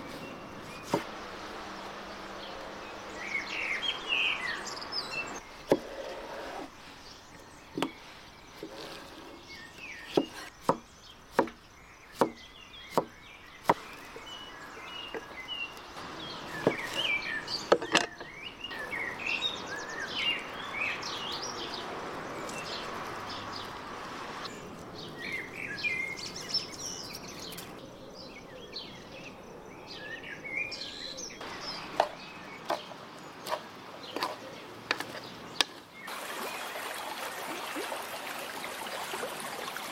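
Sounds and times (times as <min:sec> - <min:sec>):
birds chirping: 0:00.0 - 0:39.9
cleaver chopping on wooden board: 0:10.1 - 0:11.6, 0:12.2 - 0:13.8.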